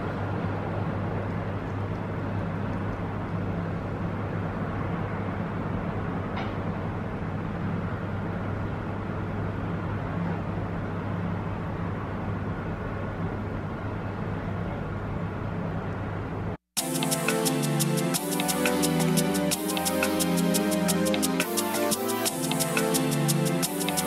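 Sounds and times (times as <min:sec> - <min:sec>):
low outdoor drone: 0:16.8 - 0:24.0.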